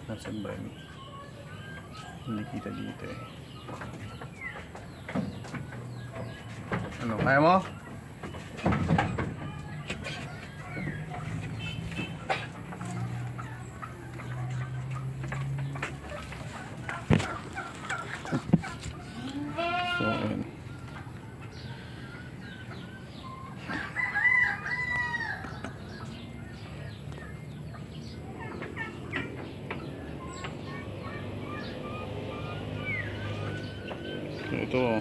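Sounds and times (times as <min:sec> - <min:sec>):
chickens clucking: 0:00.0 - 0:35.0
rooster crowing: 0:23.7 - 0:25.8.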